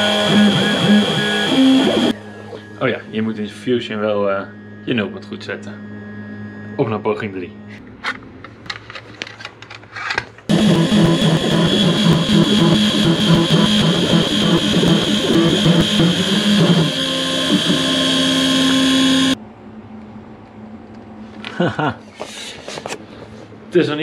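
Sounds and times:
stepper motors humming: 0.0 - 8.1, 10.5 - 19.4
high spindle whine: 0.0 - 8.2, 10.5 - 19.5.

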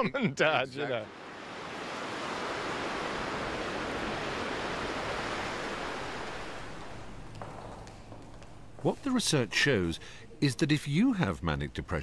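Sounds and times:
sea surf breaking on rock: 1.0 - 7.4.

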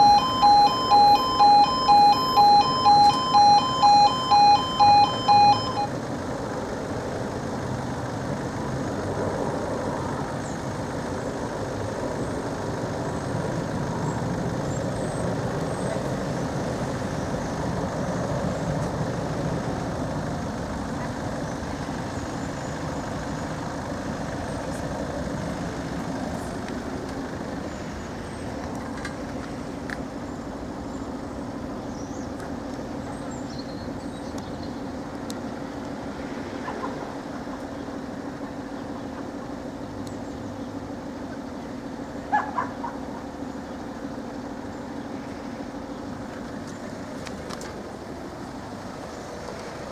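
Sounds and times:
steady hum: 0.0 - 31.9
heavy vehicle engines rumbling: 0.0 - 49.9.

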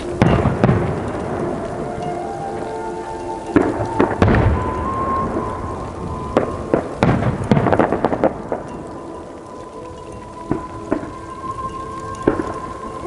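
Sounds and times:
firework cracks: 0.0 - 2.7, 3.5 - 9.4.

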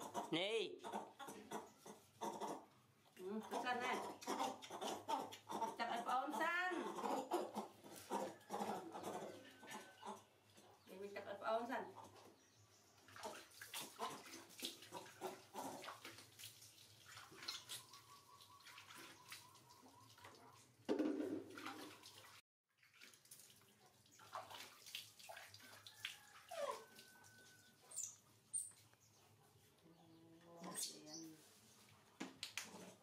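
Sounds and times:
water splashing and dripping: 12.8 - 28.8.

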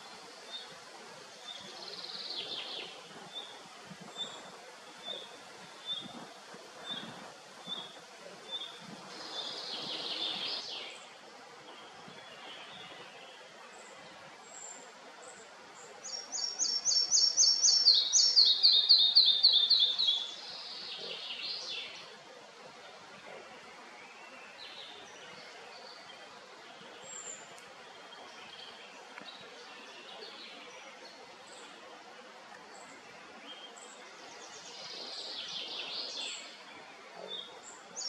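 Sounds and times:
background hiss: 0.0 - 38.0
bird singing: 16.0 - 22.1.

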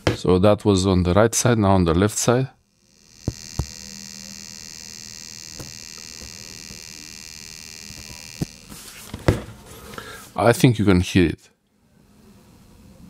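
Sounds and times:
charger high-pitched whine: 2.0 - 9.1.

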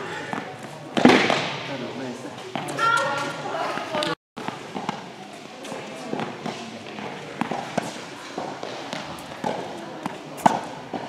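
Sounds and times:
footsteps on hard court: 2.4 - 11.0
tennis ball hit and bouncing: 2.5 - 11.0.

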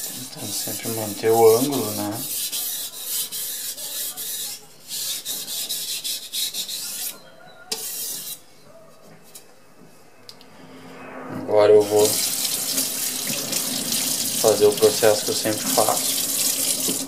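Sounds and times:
knife scraping on whetstone: 0.0 - 8.4.

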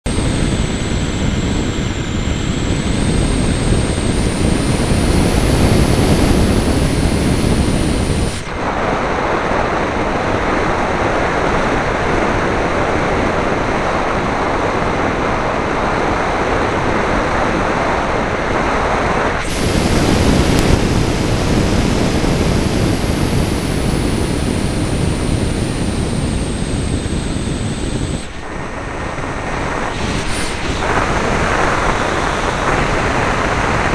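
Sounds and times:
thin high whine: 0.0 - 33.9
wind rushing over microphone: 0.0 - 33.9
model plane motor and propeller: 0.1 - 9.5, 19.5 - 33.9.

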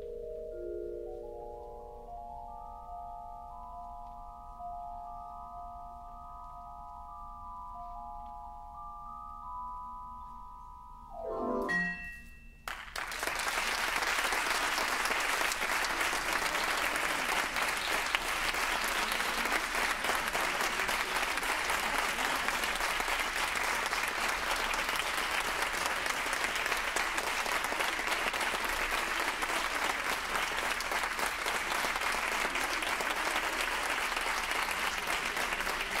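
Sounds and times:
marimba playing: 0.0 - 12.6
audience applauding: 12.6 - 36.0.

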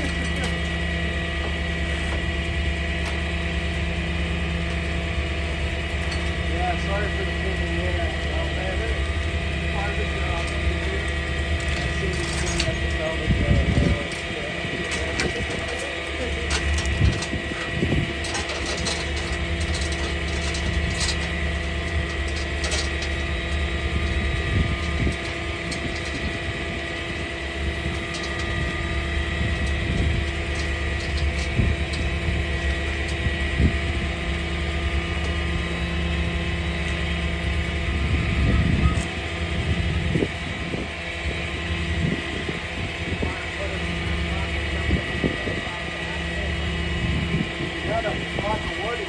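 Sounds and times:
tow chains clinking: 0.0 - 37.6
truck engine running: 0.0 - 49.0.

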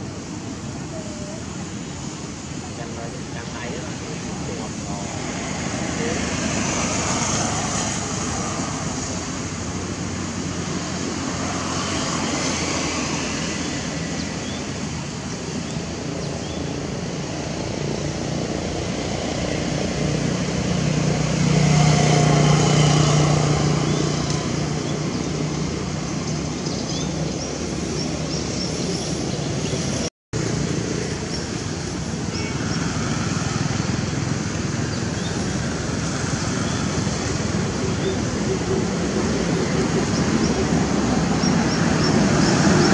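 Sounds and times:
outdoor background noise: 0.0 - 42.9
motor vehicle passing: 16.0 - 42.9.

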